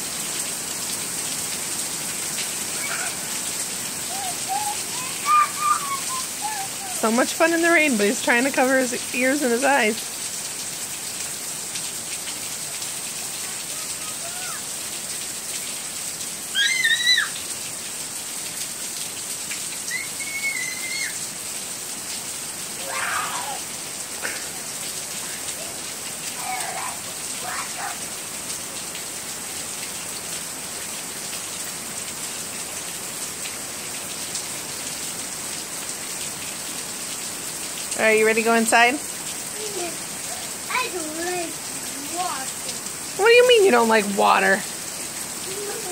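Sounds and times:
heavy rain hissing: 0:00.0 - 0:45.9
short high-pitched calls: 0:19.9 - 0:21.2.

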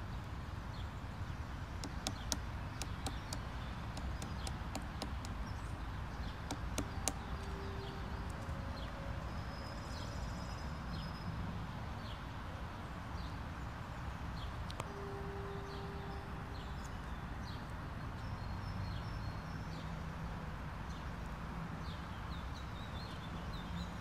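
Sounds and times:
woodpecker pecking on wood: 0:01.8 - 0:07.5.

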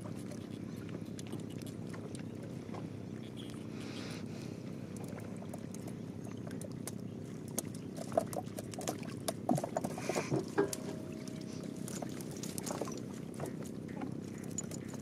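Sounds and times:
boat engine rumble: 0:00.0 - 0:15.0
knocks and splashes against hull: 0:05.0 - 0:15.0.

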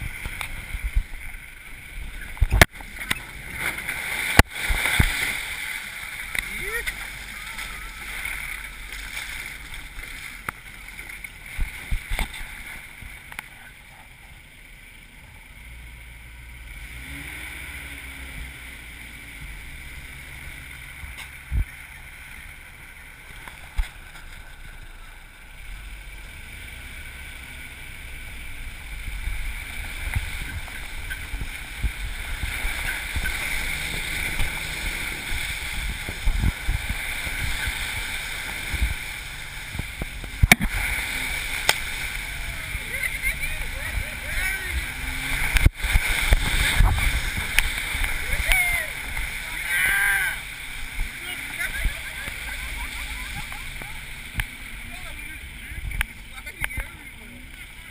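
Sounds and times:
engine and tyres rumbling: 0:00.0 - 0:57.9
wind noise: 0:29.2 - 0:48.6.

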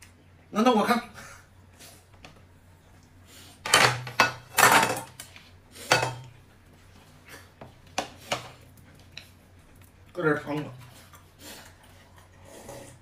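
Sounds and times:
dishes and cutlery clattering: 0:03.7 - 0:05.2, 0:05.9 - 0:06.3.

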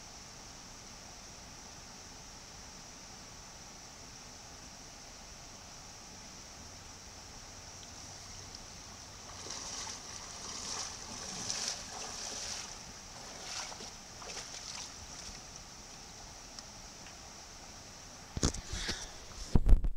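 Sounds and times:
stream rushing: 0:07.8 - 0:15.8
water splashing from wading: 0:08.0 - 0:15.6.

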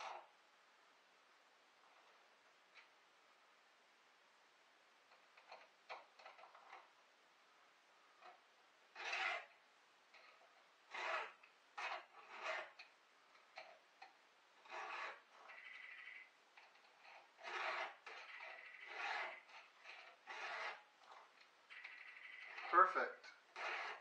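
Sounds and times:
file rasping on chainsaw chain: 0:09.0 - 0:09.5, 0:10.2 - 0:12.9, 0:14.6 - 0:15.8, 0:17.0 - 0:20.9, 0:22.2 - 0:24.0.

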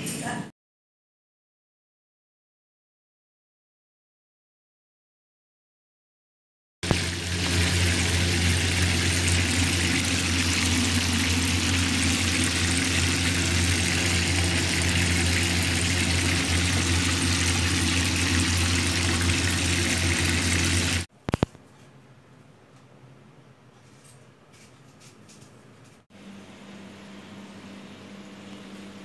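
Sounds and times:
fish sizzling in hot oil: 0:06.8 - 0:21.1.

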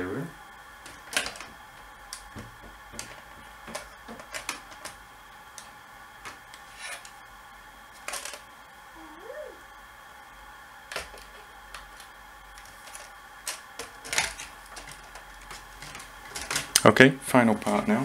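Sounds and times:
plastic parts clicking and tapping: 0:00.8 - 0:05.0, 0:10.9 - 0:16.9.

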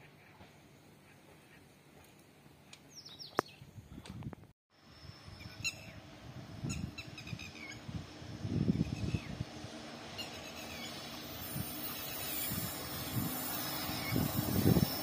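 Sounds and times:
small birds chirping: 0:02.7 - 0:03.7
wind buffeting microphone: 0:03.4 - 0:04.5, 0:05.1 - 0:15.0.

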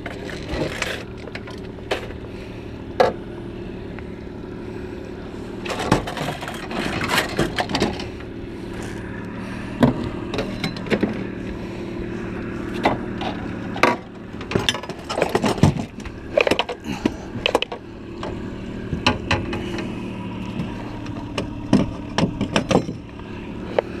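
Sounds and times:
outboard motor idling: 0:00.0 - 0:24.0.

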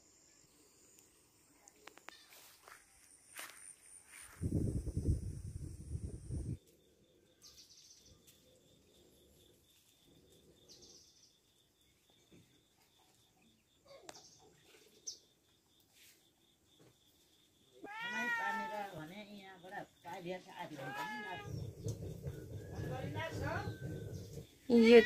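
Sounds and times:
low rumbling noise: 0:21.3 - 0:24.6.

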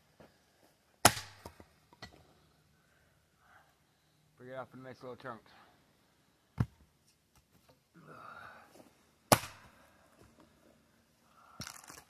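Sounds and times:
axe striking wood: 0:01.0 - 0:02.1, 0:09.3 - 0:09.7.

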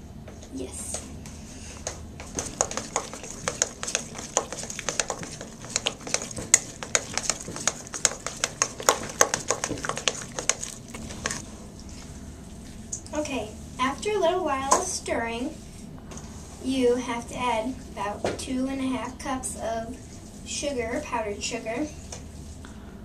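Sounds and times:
utensil scraping metal bowl: 0:02.2 - 0:11.4.

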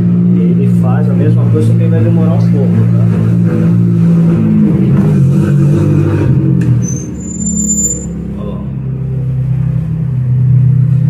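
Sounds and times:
high whistling tone: 0:06.8 - 0:08.2.

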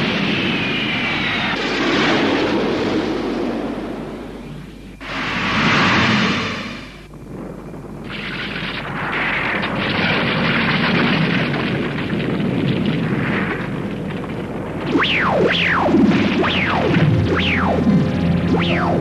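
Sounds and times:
rumbling roar of ground shaking: 0:00.0 - 0:19.0
falling synthesized whistles: 0:18.4 - 0:19.0.

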